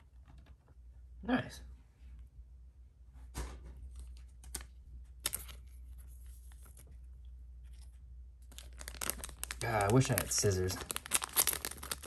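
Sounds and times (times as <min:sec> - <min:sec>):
cards and packs rustling: 0:03.8 - 0:12.0.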